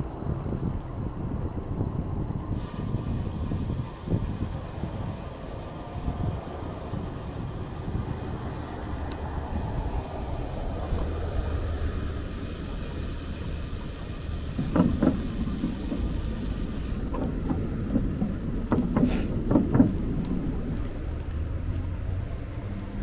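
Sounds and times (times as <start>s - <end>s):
wind rumble on microphone: 0.0s - 23.0s
bicycle knocks and rattles: 10.9s - 21.8s.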